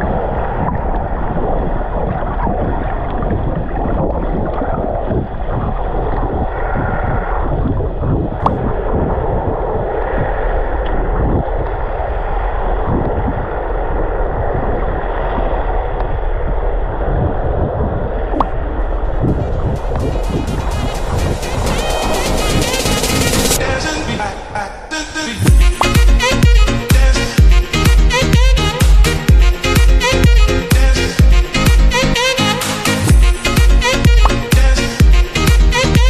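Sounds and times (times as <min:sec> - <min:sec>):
muffled water rushing and sloshing: 0:00.0 - 0:24.5.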